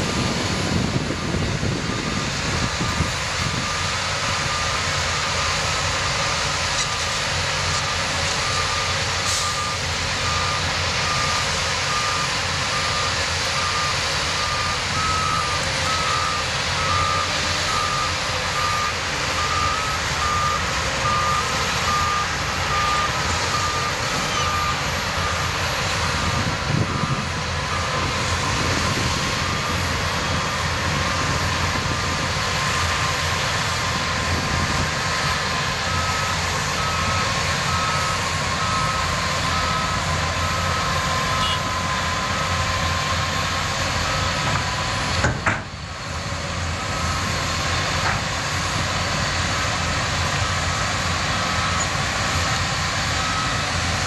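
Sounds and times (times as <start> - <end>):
diesel engines running: 0.0 - 54.0
back-up alarm beeping: 7.7 - 32.0, 32.6 - 43.4, 50.3 - 54.0
higher-pitched alarm beeping: 7.7 - 32.0, 32.6 - 45.0.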